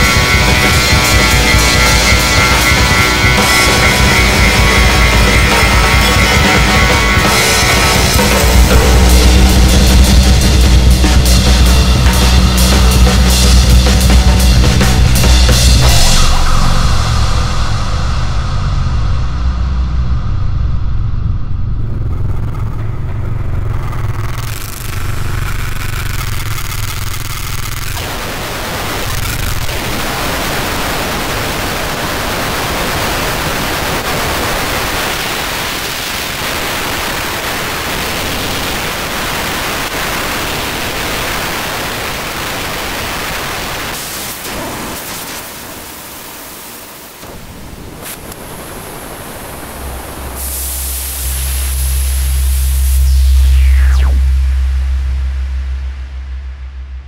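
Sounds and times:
static-like hiss: 0.0 - 18.6, 21.0 - 57.0
deep bass tone: 0.0 - 28.1, 50.4 - 57.0
low rumbling drone: 0.0 - 29.8, 49.2 - 57.0.

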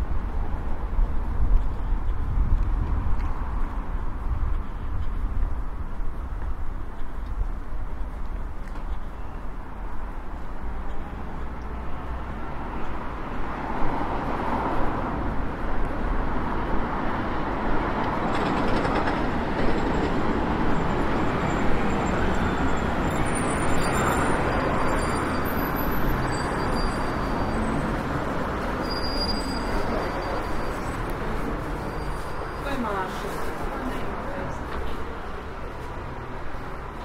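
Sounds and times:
passing vehicle rumble: 10.7 - 37.0
faint high squeaks: 21.5 - 32.9.

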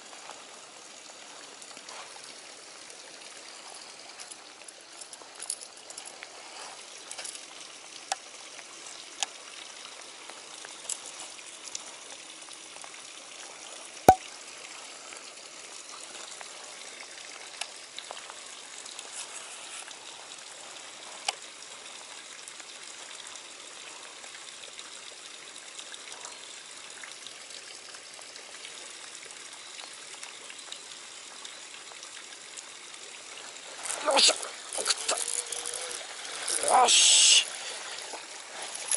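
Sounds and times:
flowing stream water: 0.0 - 38.9
rain hiss: 0.0 - 38.9.

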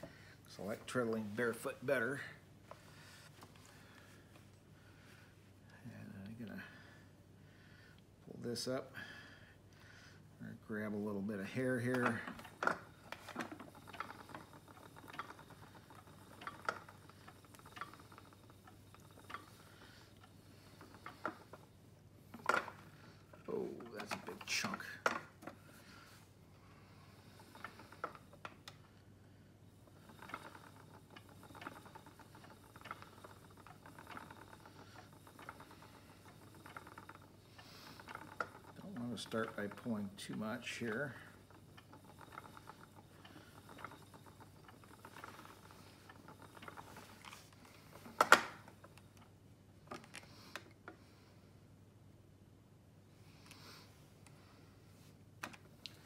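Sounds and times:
spinning wheel clicking: 10.7 - 26.1, 26.8 - 29.1, 29.7 - 51.2.

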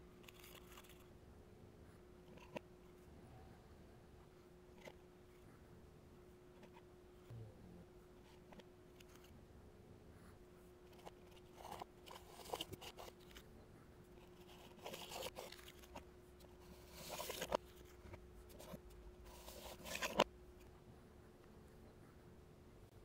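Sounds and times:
faint steady hum: 0.0 - 23.0
blocks scraping and rustling: 14.2 - 20.3.

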